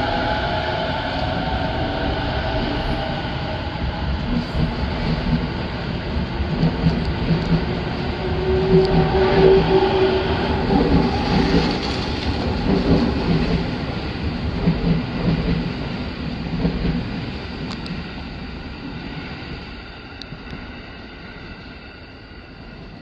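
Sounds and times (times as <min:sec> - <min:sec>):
electric train pulling away: 0:00.0 - 0:15.9.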